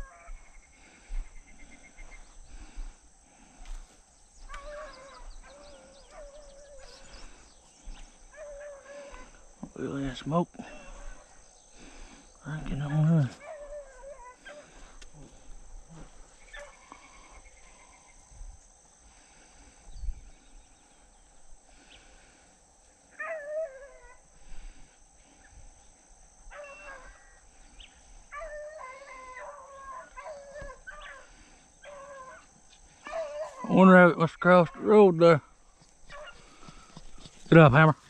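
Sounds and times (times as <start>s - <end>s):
faint baying of dogs: 0.0s - 38.0s.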